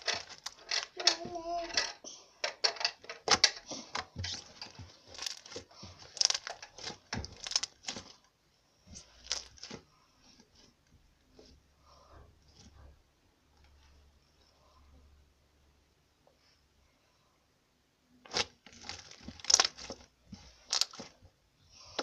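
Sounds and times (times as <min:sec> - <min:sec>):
slime squelching and crackling: 0:03.7 - 0:10.4, 0:18.2 - 0:22.0.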